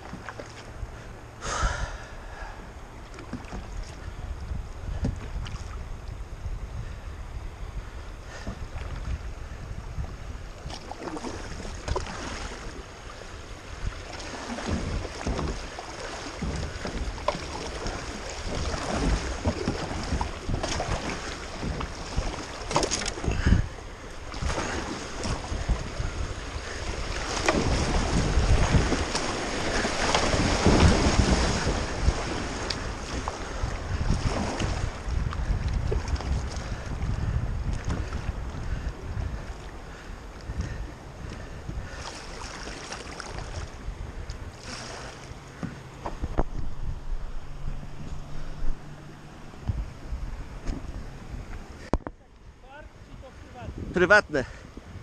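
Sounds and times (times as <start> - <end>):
paddle splashing in water: 0.0 - 1.7, 2.4 - 5.8, 9.9 - 52.4
wind buffeting microphone: 3.2 - 55.0
river water rushing: 10.9 - 35.6, 46.7 - 51.9.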